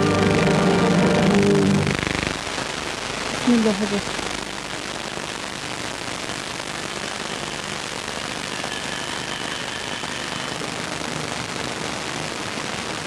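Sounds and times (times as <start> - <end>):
faint high steady tones: 0.0 - 2.3, 6.9 - 11.5
steady hiss: 0.0 - 13.0.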